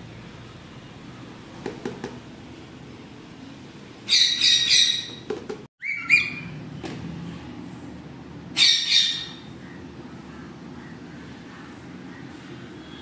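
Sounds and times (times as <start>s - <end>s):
parakeet shrill calls: 4.1s - 6.6s, 8.5s - 9.5s.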